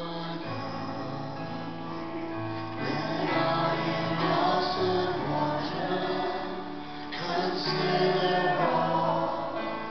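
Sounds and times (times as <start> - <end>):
keyboard accompaniment: 0.0 - 9.9
men and women singing a hymn: 0.0 - 9.9.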